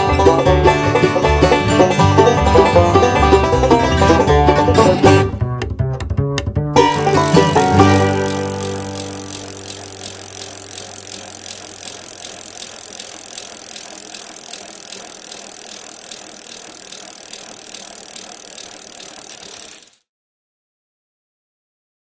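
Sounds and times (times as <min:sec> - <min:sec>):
bicycle rattling: 0:06.9 - 0:20.0
faint regular ticking: 0:06.9 - 0:20.0.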